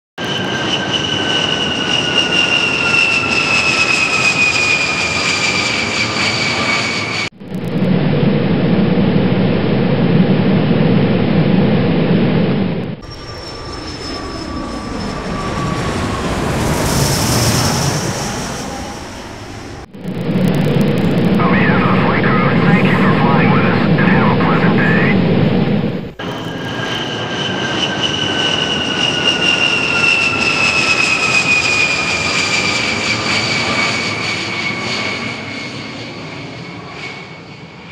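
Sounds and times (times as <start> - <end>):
jet engine whine: 0.2 - 37.9
low cabin drone: 7.3 - 13.2, 16.4 - 26.6.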